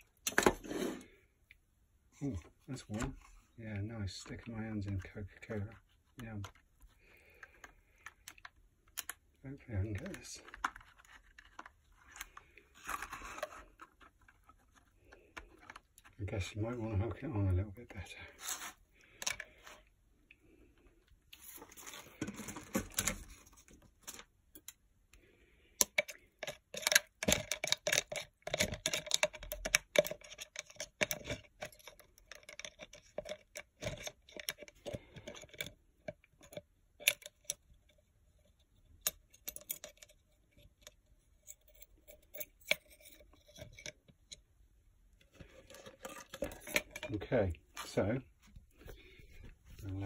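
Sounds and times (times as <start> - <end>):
small metallic clicks and clinks: 25.8 - 44.4.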